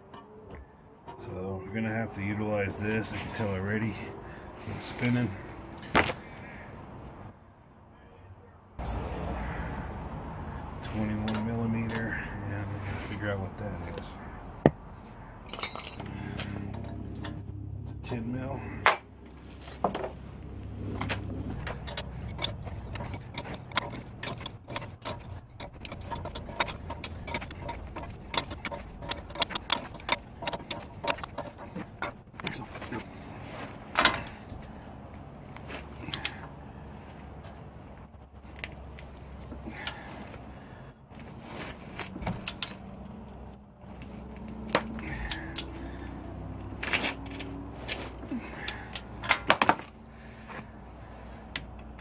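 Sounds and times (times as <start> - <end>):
low steady hum: 0.0 - 52.0
metal tool clinks: 15.4 - 16.1, 42.4 - 43.3
wrench scraping: 20.8 - 34.6
wrenches clicking on metal: 21.0 - 33.2, 35.9 - 36.6, 41.9 - 43.4, 44.0 - 46.1, 46.7 - 49.9.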